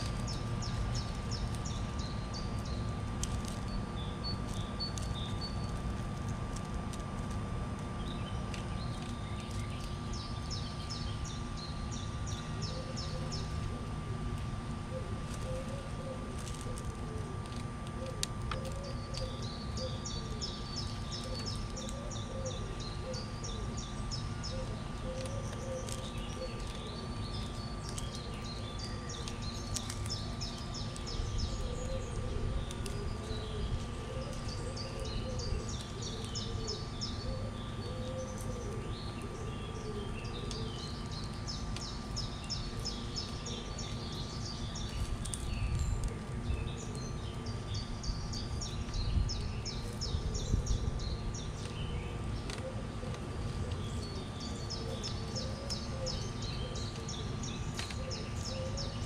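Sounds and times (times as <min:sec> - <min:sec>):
small birds chirping: 0:00.0 - 0:59.0
steady low rumble: 0:00.0 - 0:59.0
doves cooing: 0:12.2 - 0:59.0.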